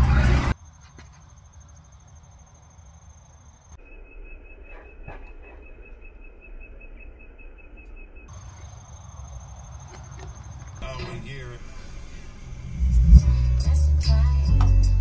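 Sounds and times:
low rumble: 0:10.8 - 0:15.0
lower-pitched pulsing trill: 0:11.6 - 0:15.0
high-pitched pulsing trill: 0:12.4 - 0:14.1.

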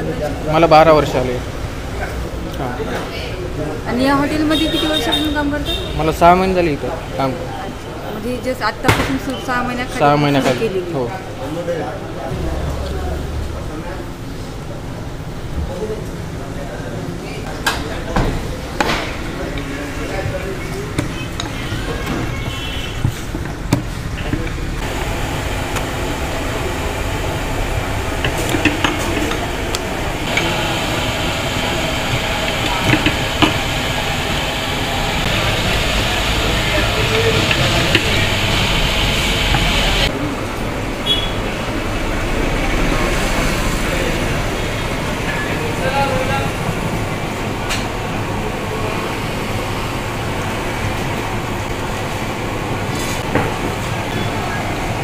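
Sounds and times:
low rumbling background noise: 0:00.0 - 0:55.0.

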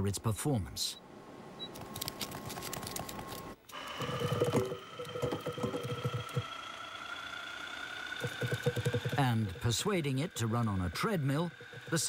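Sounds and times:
rapid irregular rattle: 0:02.2 - 0:12.0
small electric motor whine: 0:03.6 - 0:12.0
thin steady tone: 0:03.7 - 0:12.0.

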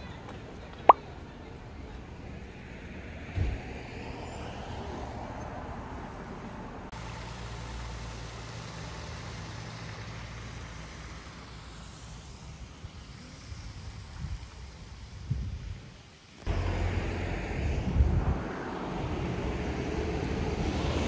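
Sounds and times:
road traffic noise: 0:00.0 - 0:21.0
steady low rumble: 0:16.5 - 0:21.0.

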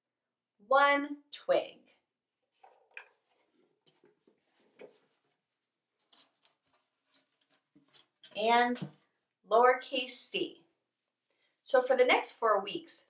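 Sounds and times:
small objects clicking and rustling: 0:06.0 - 0:09.0.

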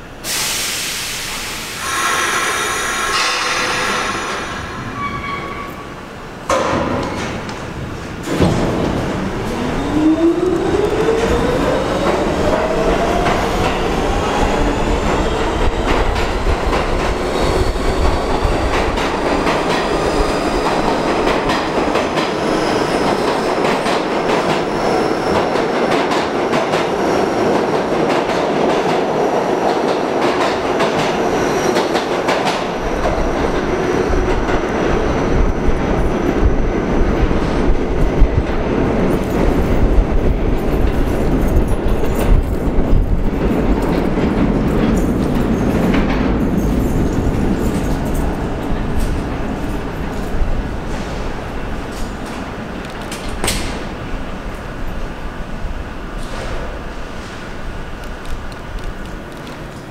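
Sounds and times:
subway train rumble: 0:00.0 - 0:59.9
high wheel squeals: 0:01.8 - 0:06.0.

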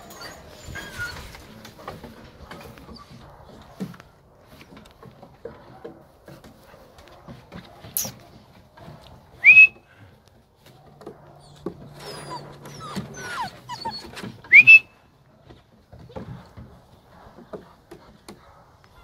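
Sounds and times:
puppy whimpering: 0:00.0 - 0:01.5, 0:11.4 - 0:14.8
person whistling rising whistle: 0:09.4 - 0:09.8, 0:14.5 - 0:14.9.

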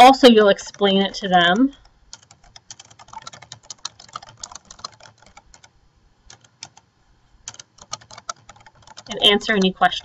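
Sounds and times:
keyboard key clicks: 0:02.2 - 0:05.7, 0:07.5 - 0:09.8.

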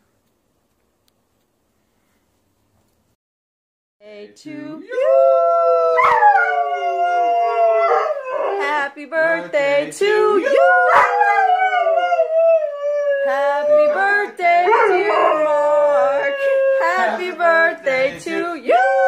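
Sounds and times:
dog howling: 0:04.9 - 0:08.8, 0:10.4 - 0:17.9, 0:18.6 - 0:19.0.

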